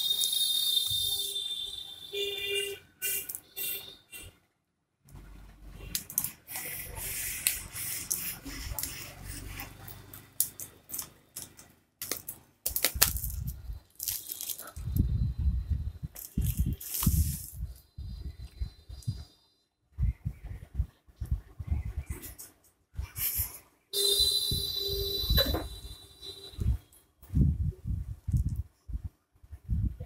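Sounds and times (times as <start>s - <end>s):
bubble wrap and cardboard crinkling: 5.9s - 15.0s, 16.1s - 17.8s.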